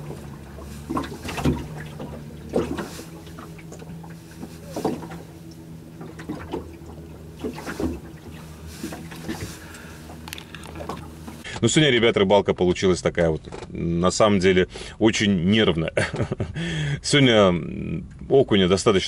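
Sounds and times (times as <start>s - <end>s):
water lapping against boat hull: 0.0s - 11.4s
steady low hum: 0.0s - 11.5s.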